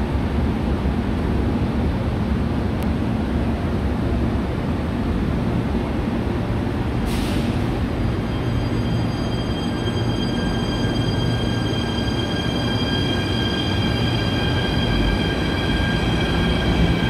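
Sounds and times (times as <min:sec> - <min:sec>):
electric train rumbling: 0:00.0 - 0:17.0
air brakes hissing: 0:07.0 - 0:07.9
traction motors whining: 0:08.1 - 0:17.0.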